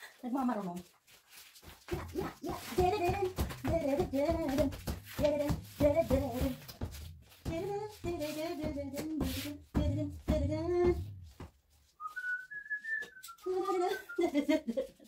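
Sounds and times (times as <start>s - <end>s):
person chanting rhythmic phrases: 1.9s - 6.7s
person whistling rising note: 12.0s - 14.2s.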